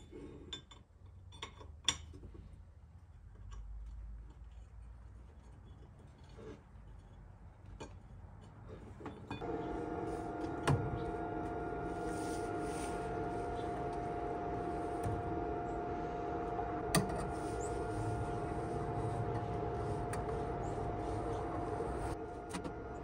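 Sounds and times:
machine hum with held tone: 9.3 - 23.0.

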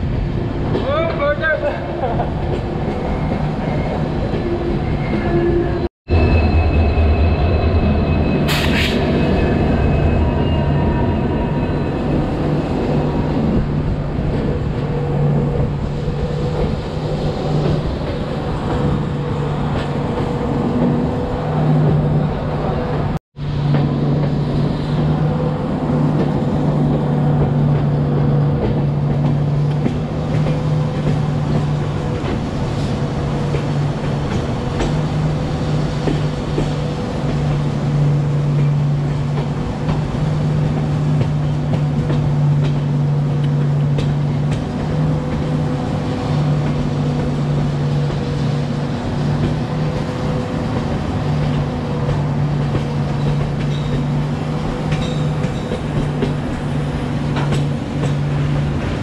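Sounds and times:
train wheels rumbling on rail: 0.0 - 59.0
high wheel squeal: 3.0 - 13.0.

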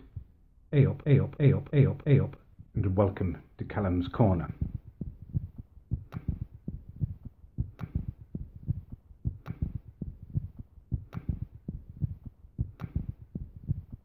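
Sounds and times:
throbbing bass thumps: 4.4 - 14.0.

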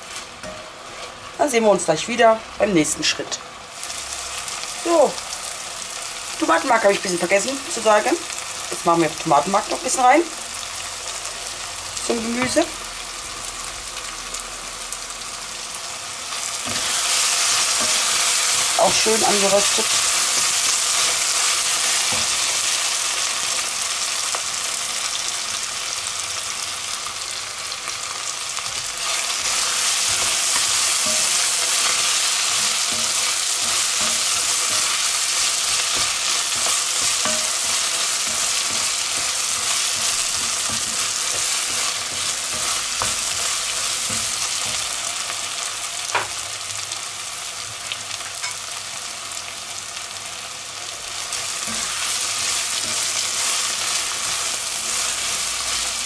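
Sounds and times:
vegetables sizzling in butter: 0.0 - 56.0
wooden spatula scraping pot: 29.1 - 44.9.

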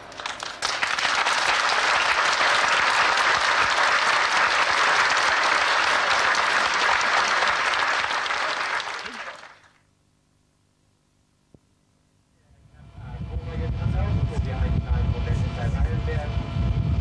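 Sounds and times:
crowd applauding: 0.0 - 9.8.

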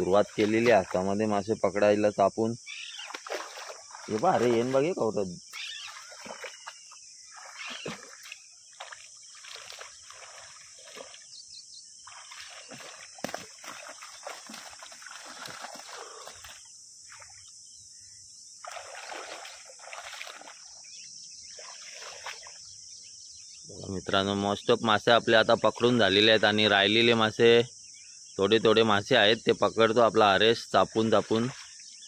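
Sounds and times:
pond water splashing: 0.0 - 1.4, 2.7 - 17.5, 18.6 - 22.8, 30.8 - 32.0.

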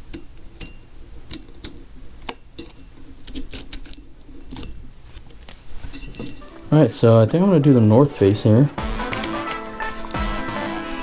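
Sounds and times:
stickers crinkling: 6.4 - 11.0.

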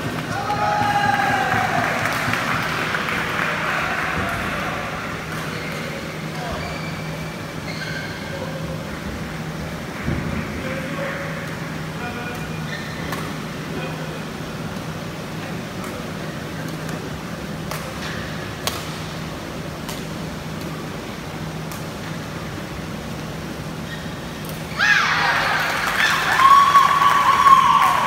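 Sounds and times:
low hum in hall: 0.0 - 28.0
rackets striking shuttlecock: 17.6 - 19.2, 19.8 - 20.8.

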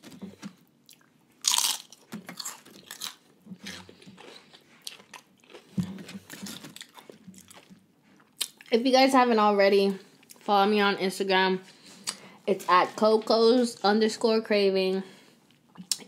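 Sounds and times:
crunchy chips being chewed: 0.9 - 8.8.

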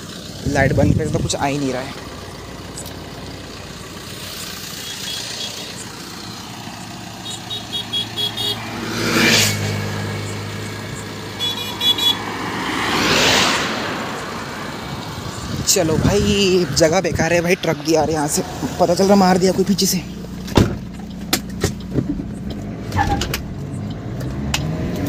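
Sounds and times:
highway traffic passing: 0.0 - 25.0
low engine hum: 0.0 - 25.0
short high horn toots: 7.3 - 8.7, 11.4 - 12.2.

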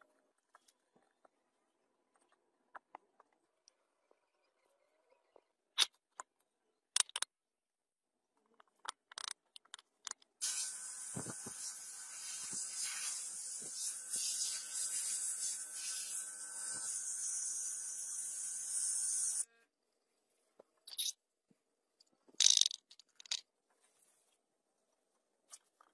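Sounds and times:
pressurised jet hissing: 10.4 - 17.0.

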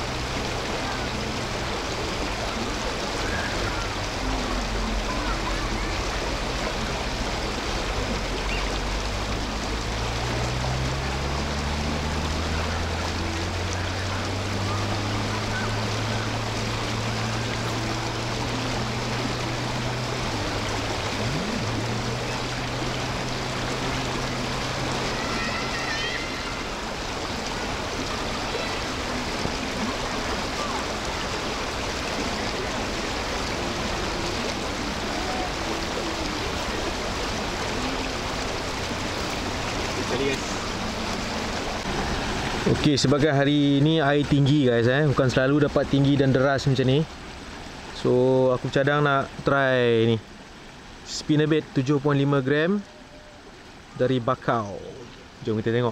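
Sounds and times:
low hum rising in pitch: 0.0 - 42.8
fast-flowing stream water: 0.0 - 55.9.

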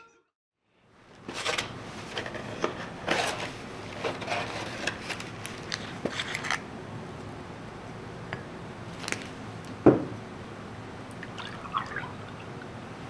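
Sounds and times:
paper crackling and rustling: 1.3 - 6.6, 9.0 - 9.4.

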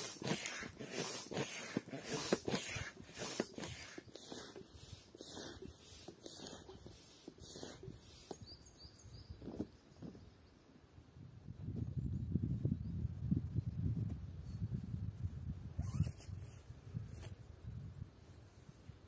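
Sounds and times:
hand air pump whooshing: 0.0 - 8.6, 15.8 - 17.4.

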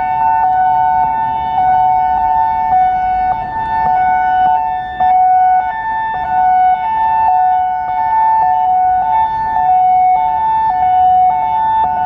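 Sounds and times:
two-tone warning siren: 0.0 - 12.0.

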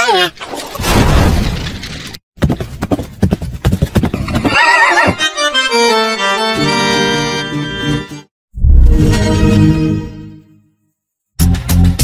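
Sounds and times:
horse hoofbeats clattering: 2.4 - 5.4
horse whinny: 4.2 - 5.2.

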